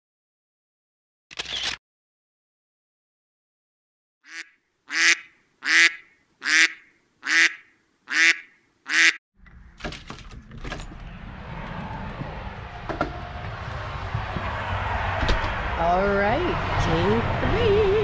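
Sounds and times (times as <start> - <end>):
duck-like quacks: 4.3 - 9.2
wind rumble on microphone: 10.3 - 18.0.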